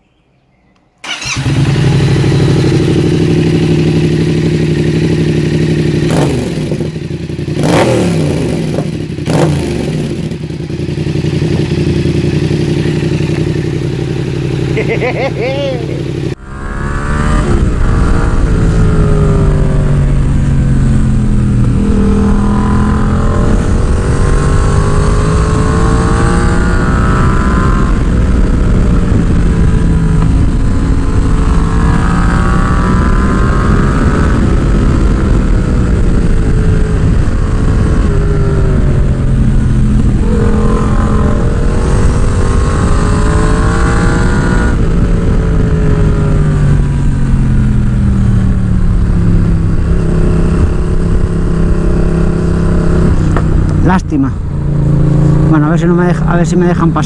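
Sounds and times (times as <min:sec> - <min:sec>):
motorcycle engine revving: 0:01.0 - 0:57.0.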